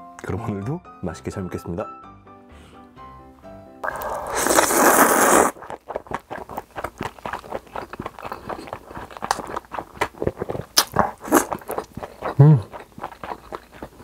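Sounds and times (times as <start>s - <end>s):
chewing smacks: 3.8s - 14.0s
person slurping noodles: 3.8s - 14.0s.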